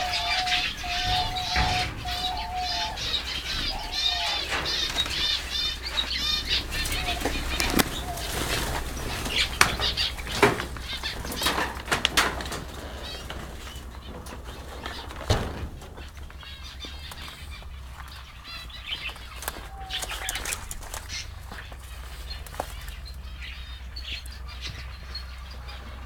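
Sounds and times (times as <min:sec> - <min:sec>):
finches chirping: 0:00.0 - 0:15.1, 0:16.0 - 0:26.0
sharp clicks and rustles: 0:00.0 - 0:23.2.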